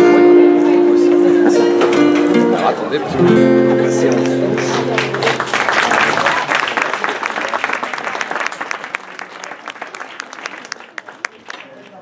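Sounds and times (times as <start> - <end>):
audience applause: 4.1 - 12.0.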